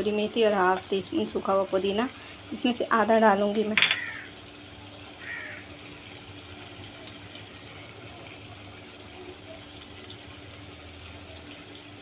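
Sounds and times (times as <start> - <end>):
pot hissing on gas stove: 0.0 - 12.0.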